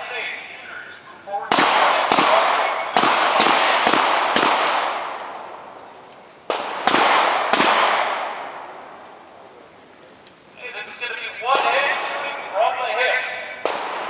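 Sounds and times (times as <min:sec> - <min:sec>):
handgun shots echoing: 0:01.5 - 0:05.6, 0:06.5 - 0:08.7, 0:13.6 - 0:14.0.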